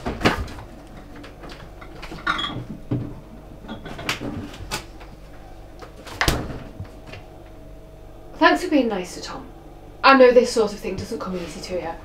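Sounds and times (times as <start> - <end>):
fridge door shutting: 0.0 - 5.1, 5.9 - 7.3
glass bottles clinking: 2.2 - 2.7.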